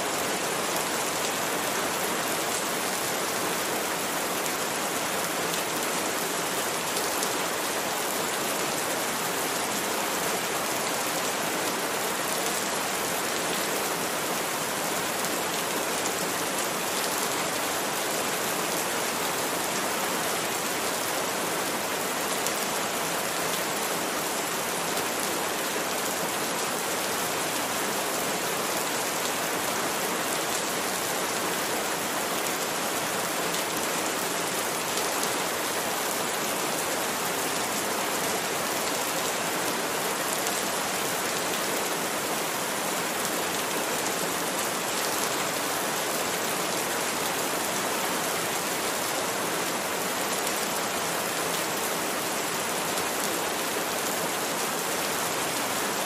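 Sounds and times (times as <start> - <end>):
rain falling on leaves: 0.0 - 56.0.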